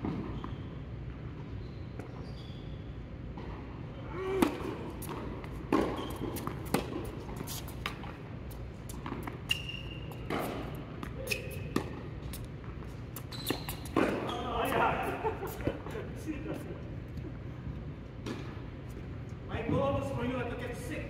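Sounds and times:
steady low hum: 0:00.0 - 0:21.0
short high squeaks: 0:01.6 - 0:03.0, 0:05.8 - 0:06.7, 0:09.4 - 0:11.8, 0:13.2 - 0:14.6
tennis ball struck and bouncing: 0:04.4 - 0:08.3, 0:08.9 - 0:14.3.

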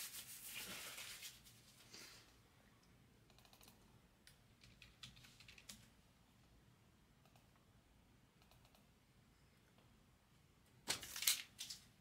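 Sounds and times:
faint keyboard typing: 0:02.8 - 0:06.0, 0:07.2 - 0:07.7, 0:08.4 - 0:09.0.

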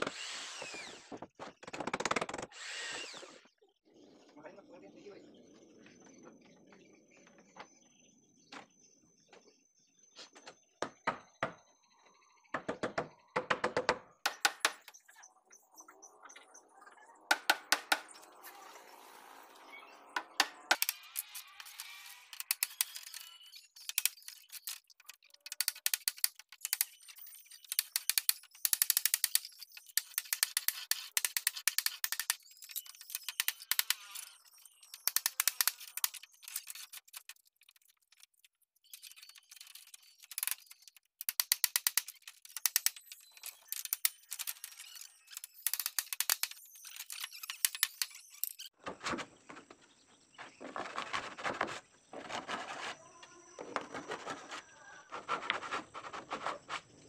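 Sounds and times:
hand tools clicking and scraping wood: 0:13.6 - 0:15.0, 0:20.2 - 0:49.8, 0:50.4 - 0:57.0.

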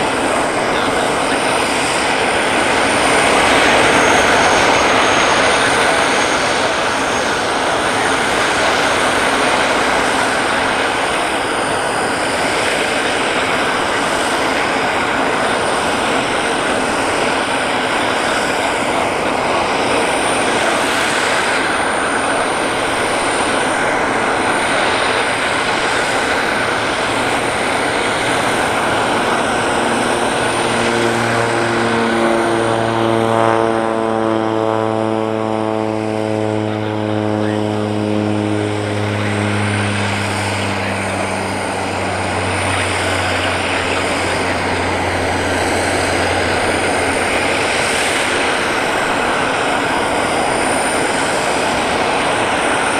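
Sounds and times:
aircraft turbine whine: 0:00.0 - 0:52.9
deep pitched drone: 0:00.0 - 0:52.9.

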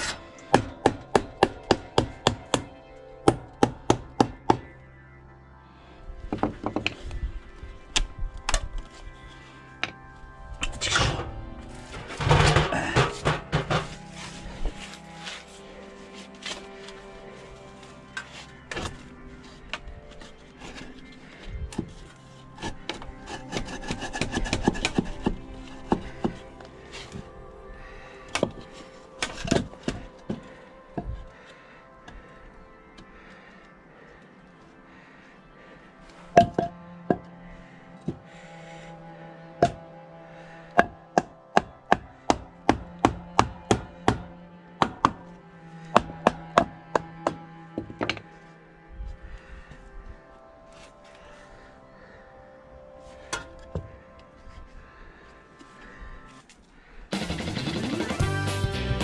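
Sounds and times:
faint steady drone: 0:00.0 - 0:58.1
faint background music: 0:00.0 - 0:59.0
hammer striking wood: 0:00.5 - 0:04.7, 0:40.8 - 0:45.2, 0:45.9 - 0:48.1
hand tool rasping wood: 0:21.8 - 0:27.3, 0:40.8 - 0:48.4.

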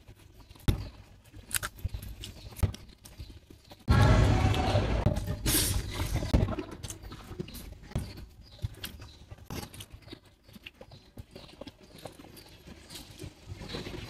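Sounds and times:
person chewing: 0:01.3 - 0:02.6.

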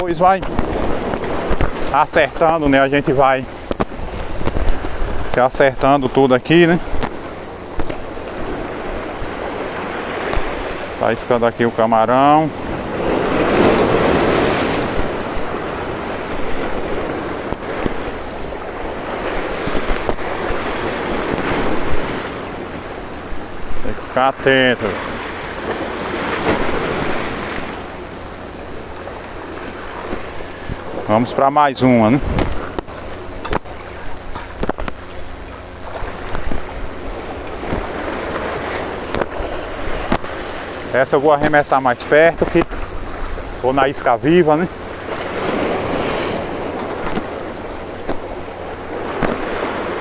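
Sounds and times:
wind on microphone: 0:00.0 - 0:06.1, 0:32.0 - 0:40.8
surf washing against rocks: 0:00.0 - 0:50.0
sharp clicks and knocks: 0:03.6 - 0:05.4, 0:32.3 - 0:36.6.

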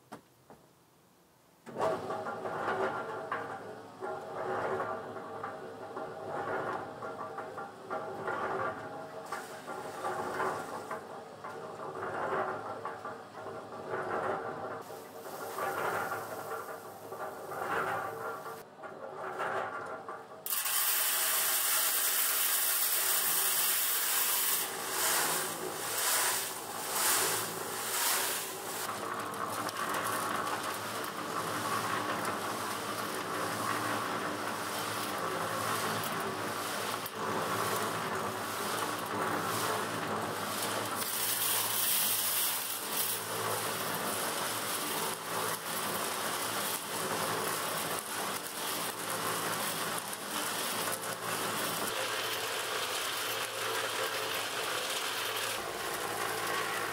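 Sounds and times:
concrete mixer motor humming: 0:20.5 - 0:56.9
gravel churning in drum: 0:23.6 - 0:56.9.

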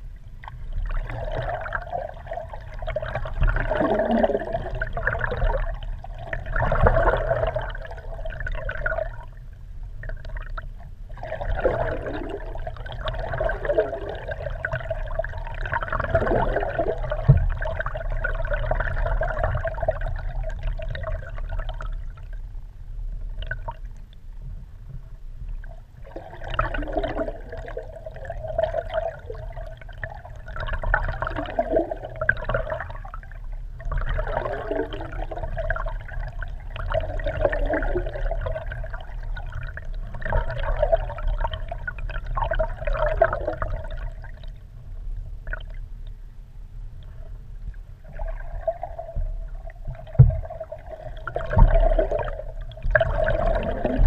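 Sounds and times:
muffled water rushing and gurgling: 0:00.0 - 0:54.0
steady low rumble: 0:00.0 - 0:54.0.

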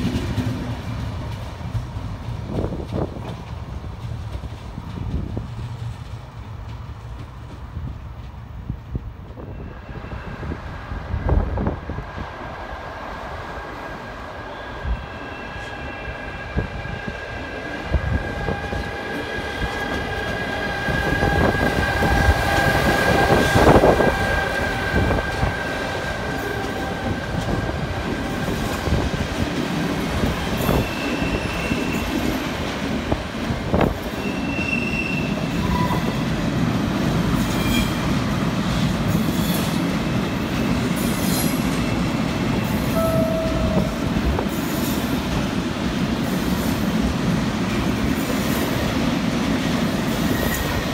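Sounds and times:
train wheels clicking over rails: 0:00.0 - 0:09.5, 0:16.9 - 0:34.6
electric locomotive whine: 0:08.7 - 0:50.9
wheel squeals: 0:30.5 - 0:32.4, 0:34.1 - 0:36.2.

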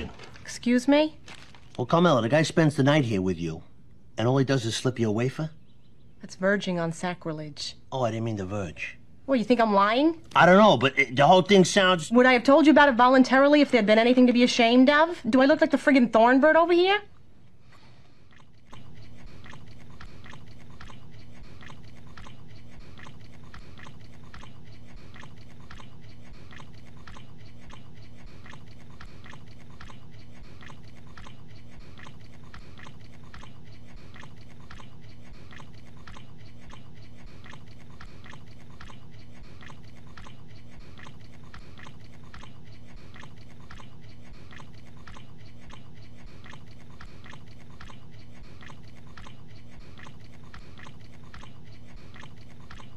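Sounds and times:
man chewing wetly: 0:00.0 - 0:00.5, 0:01.2 - 0:02.4, 0:17.2 - 0:52.9.

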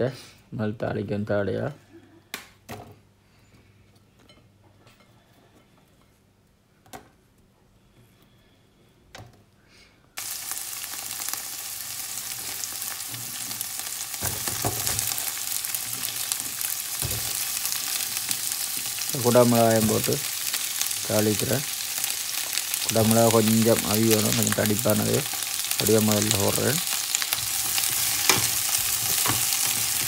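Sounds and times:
onions sizzling in a pan: 0:10.2 - 0:30.0.

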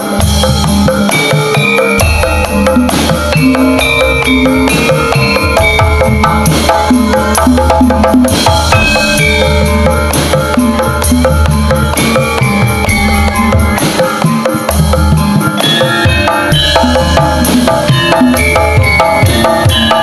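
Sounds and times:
brisk drumming: 0:00.0 - 0:20.0
gamelan music: 0:00.0 - 0:20.0
deep bass: 0:02.0 - 0:13.8.

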